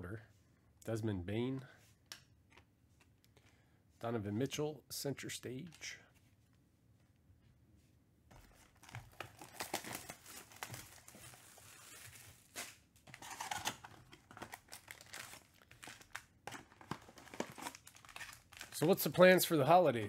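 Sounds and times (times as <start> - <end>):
plastic wrap crinkling and tearing: 8.5 - 19.3.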